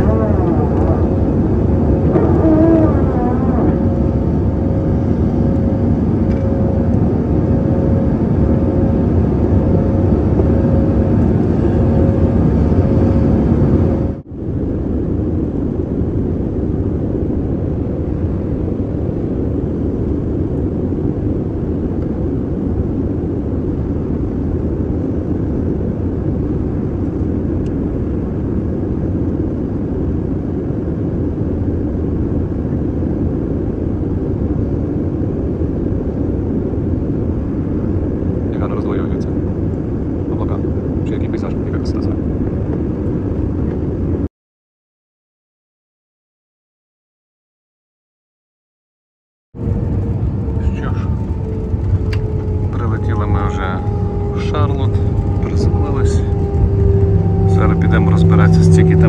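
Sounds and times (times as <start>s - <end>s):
steady two-note hum: 0.0s - 14.2s, 50.3s - 59.0s
jet cabin engine rushing: 0.0s - 44.3s, 49.6s - 59.0s.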